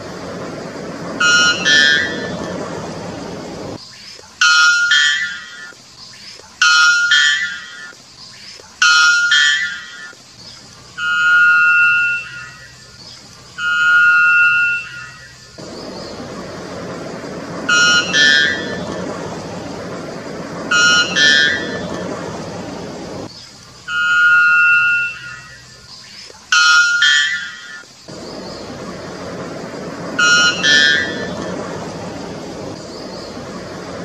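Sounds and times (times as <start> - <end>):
bird calling horn-like notes: 0.0 - 3.8, 4.4 - 5.8, 6.6 - 8.0, 8.8 - 10.2, 11.0 - 23.3, 23.9 - 25.9, 26.5 - 34.0
steady rushing noise: 0.0 - 4.4, 14.9 - 23.9, 27.3 - 34.0.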